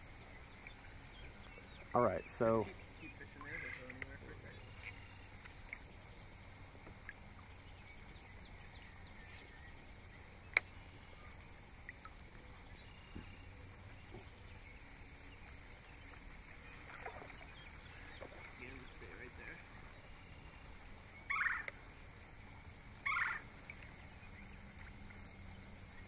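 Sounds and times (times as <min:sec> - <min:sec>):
faint high insect hum: 0:00.0 - 0:26.0
faint ticks: 0:10.5 - 0:10.8, 0:11.8 - 0:12.2, 0:23.6 - 0:26.0.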